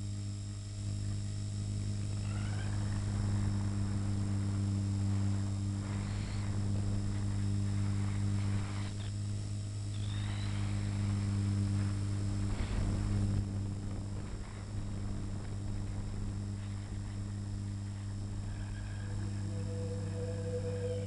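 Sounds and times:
helicopter rotor hum: 0:00.0 - 0:21.0.

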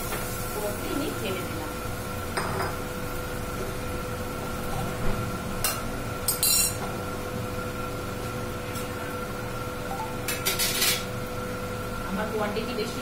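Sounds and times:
steady background hum: 0:00.0 - 0:13.0
kitchen utensils clinking: 0:06.3 - 0:06.8, 0:10.0 - 0:11.1.

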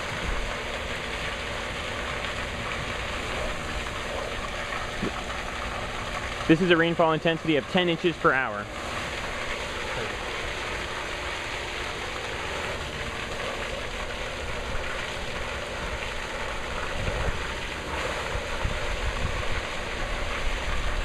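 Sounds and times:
hiss of falling water spray: 0:16.5 - 0:21.0.

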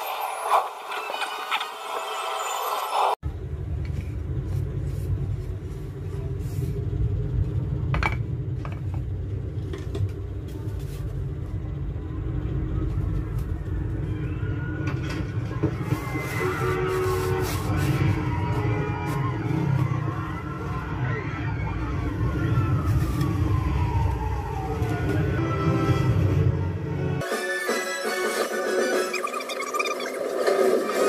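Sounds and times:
deep rumbling sound effects: 0:03.2 - 0:27.2.

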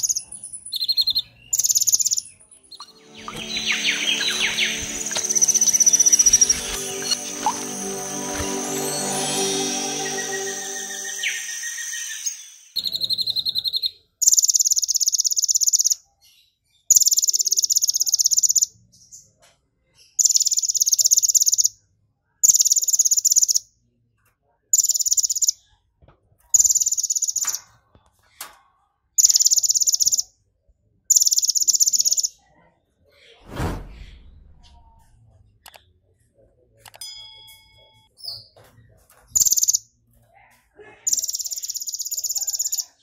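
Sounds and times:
sunbird buzzy trills: 0:00.8 - 0:13.8
thump: 0:33.5 - 0:35.0.

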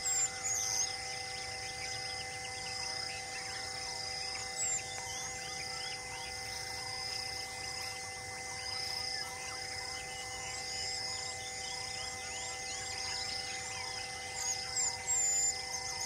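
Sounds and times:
whistled bird call: 0:00.0 - 0:02.7
insects trilling and buzzing: 0:00.0 - 0:16.0.

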